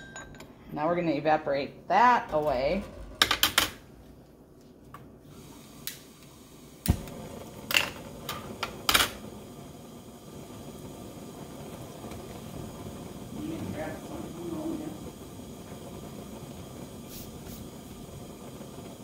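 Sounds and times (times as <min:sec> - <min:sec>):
burner flame hissing: 0:00.8 - 0:19.0
lighter clicks: 0:05.8 - 0:07.2.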